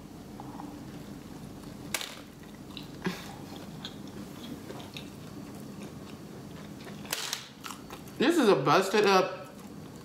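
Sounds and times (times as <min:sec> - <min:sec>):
person chewing food: 0:02.4 - 0:08.2.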